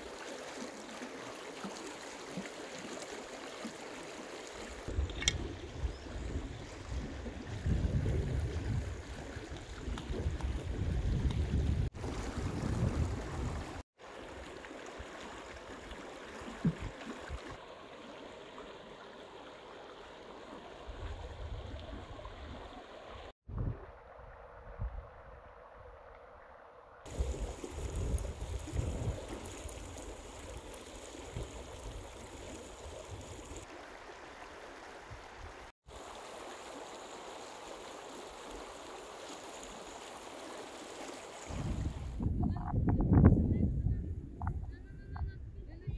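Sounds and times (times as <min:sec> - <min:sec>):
stream rushing over stones: 0:00.0 - 0:05.4, 0:06.8 - 0:23.3, 0:27.0 - 0:42.2
wind buffeting microphone: 0:04.9 - 0:13.8, 0:27.1 - 0:30.0, 0:41.5 - 0:45.9.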